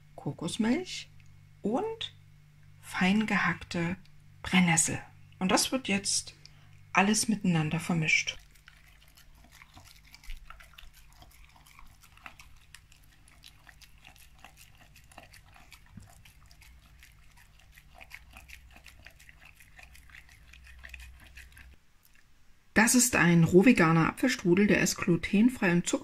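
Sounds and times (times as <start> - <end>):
dog chewing and smacking: 7.6 - 22.2.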